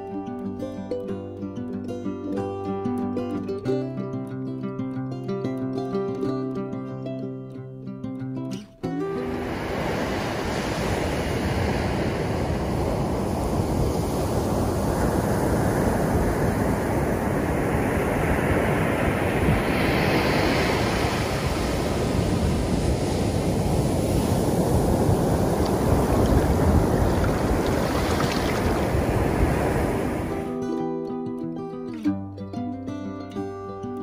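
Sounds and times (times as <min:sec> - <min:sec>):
ocean surf breaking on beach: 0:08.8 - 0:30.7
wind buffeting microphone: 0:09.3 - 0:30.5.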